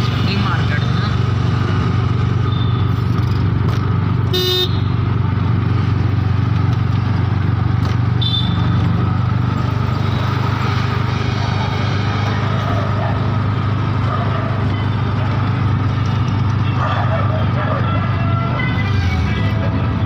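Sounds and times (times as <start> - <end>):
vehicle engine and road noise: 0.0 - 20.0
car horn honk: 4.3 - 5.0, 8.2 - 8.9.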